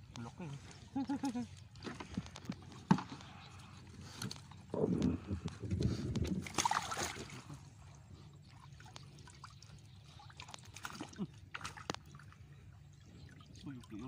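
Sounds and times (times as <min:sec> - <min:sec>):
water lapping: 0:00.0 - 0:14.0
water splashing and trickling: 0:00.0 - 0:14.0.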